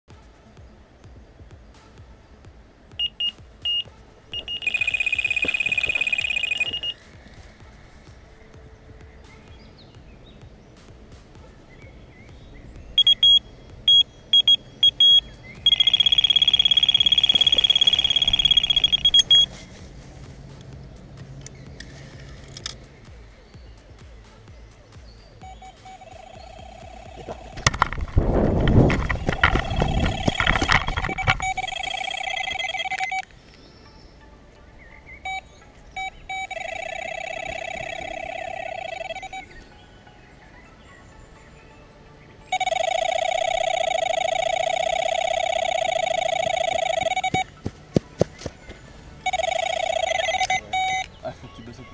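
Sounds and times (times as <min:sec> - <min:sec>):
electronic bite alarm beeping: 0:03.0 - 0:07.0, 0:13.0 - 0:19.5, 0:25.4 - 0:27.9, 0:28.6 - 0:33.2, 0:35.2 - 0:39.6, 0:42.5 - 0:47.5, 0:49.2 - 0:51.1.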